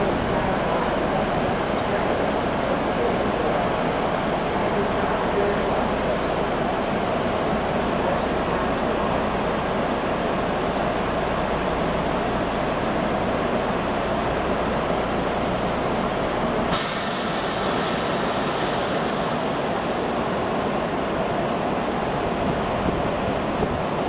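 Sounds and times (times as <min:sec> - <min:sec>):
electric train rumbling: 0:00.0 - 0:24.0
hiss of air: 0:16.7 - 0:19.8.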